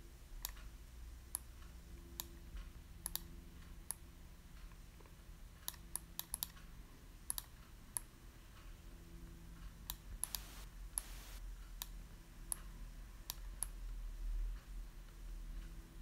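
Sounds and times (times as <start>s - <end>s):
computer mouse clicking: 3.0s - 4.0s, 5.6s - 6.7s, 7.3s - 8.1s, 9.9s - 11.9s, 12.5s - 13.8s.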